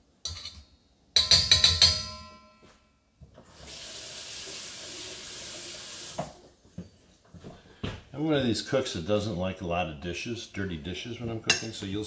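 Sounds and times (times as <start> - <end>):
kitchen tap running: 3.4 - 6.4.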